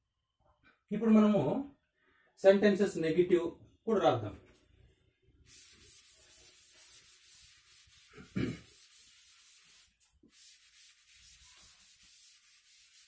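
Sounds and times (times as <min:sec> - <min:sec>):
duster wiping blackboard: 0:05.5 - 0:13.0.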